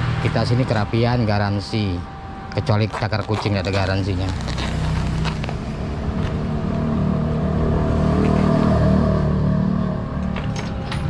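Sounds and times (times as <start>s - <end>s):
vehicle engine passing: 3.6s - 10.9s.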